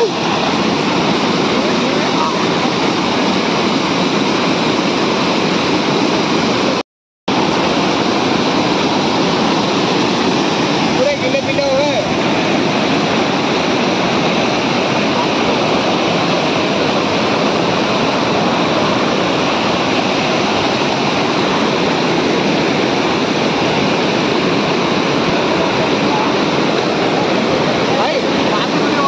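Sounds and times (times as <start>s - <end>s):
whitewater rushing over rocks: 0.0s - 29.0s.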